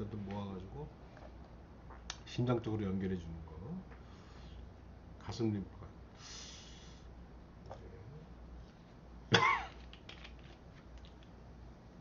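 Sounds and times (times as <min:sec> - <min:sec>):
man coughing: 0:09.3 - 0:09.8.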